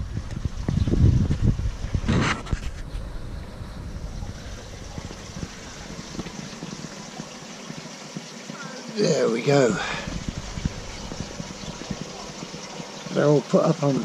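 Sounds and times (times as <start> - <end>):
wind buffeting microphone: 0.0 - 7.4, 9.7 - 12.7.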